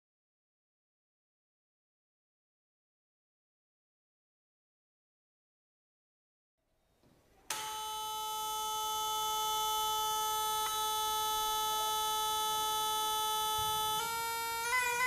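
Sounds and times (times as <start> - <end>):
steady buzzy tone: 6.7 - 15.0.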